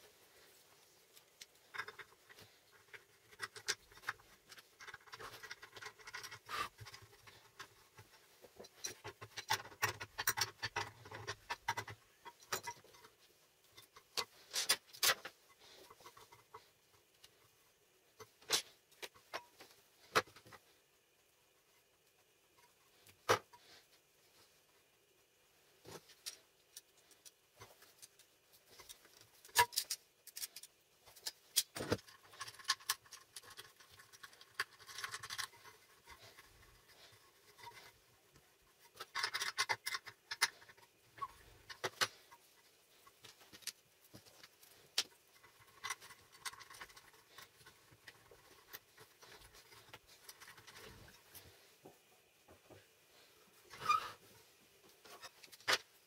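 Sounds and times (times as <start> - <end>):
wires rustling and scraping: 0.0 - 56.0
metal parts clicking and tapping: 1.1 - 17.4, 25.9 - 51.4.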